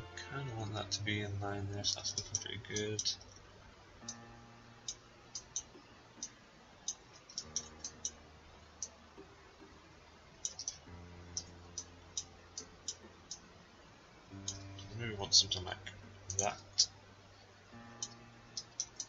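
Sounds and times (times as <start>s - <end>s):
faint low hum: 0.0s - 19.0s
computer mouse clicking: 4.8s - 8.2s, 10.4s - 13.4s, 18.0s - 19.0s.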